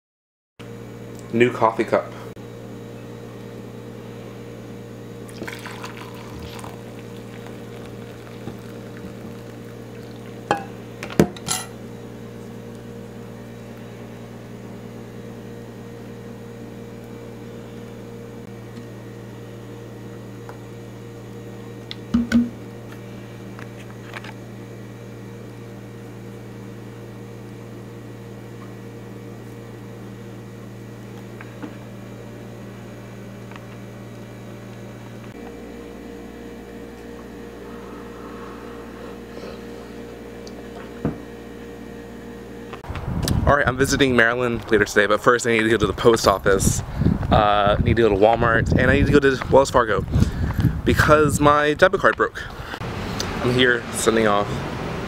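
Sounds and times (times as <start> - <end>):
steady low hum: 0.6 - 55.0
hot water pouring into mug: 5.3 - 10.7
pot and mug clinking: 10.1 - 11.7.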